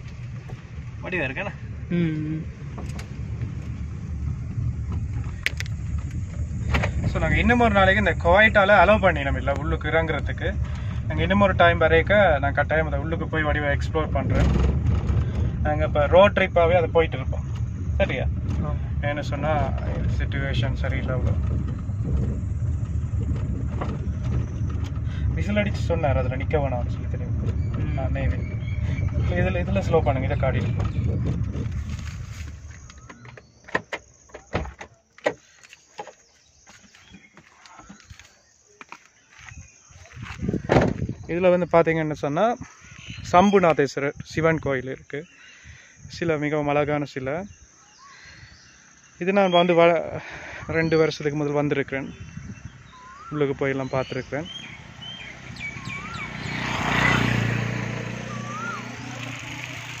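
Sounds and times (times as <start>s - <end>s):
vehicle driving past: 0.0s - 32.9s, 54.3s - 60.0s
birds chirping: 0.0s - 60.0s
car engine and tyre rumble: 0.0s - 60.0s
sharp knocks and clicks: 32.8s - 36.2s.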